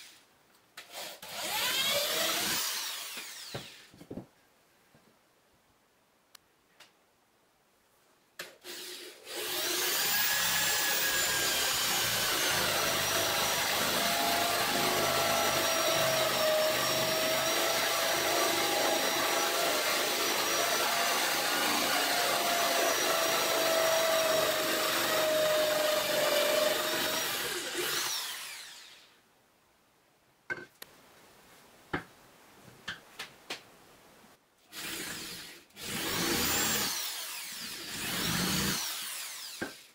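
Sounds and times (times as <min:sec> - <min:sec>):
power drill boring into wood: 0:00.9 - 0:03.9, 0:08.6 - 0:29.1, 0:34.7 - 0:39.9.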